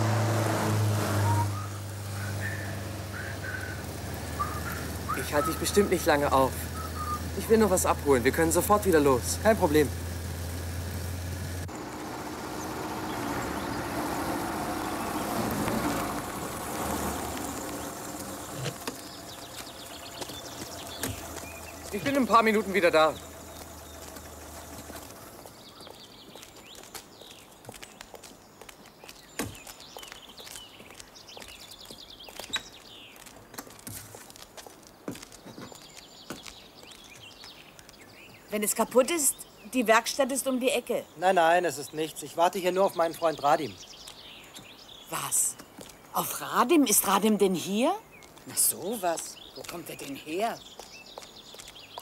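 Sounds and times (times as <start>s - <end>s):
car engine pulling to a stop: 0.0s - 26.4s
birds chirping: 0.0s - 52.0s
footsteps on a path: 12.5s - 39.6s, 42.9s - 52.0s.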